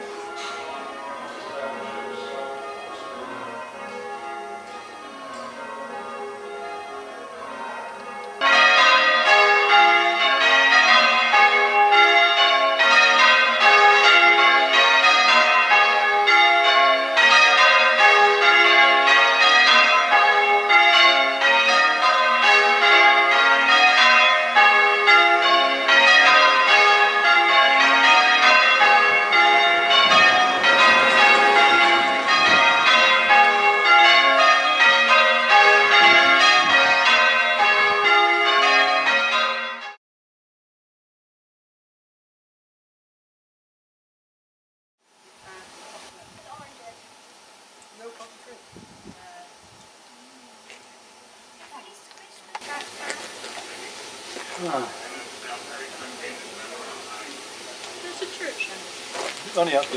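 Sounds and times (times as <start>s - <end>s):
church bells change ringing: 0.0s - 40.0s, 52.6s - 59.9s.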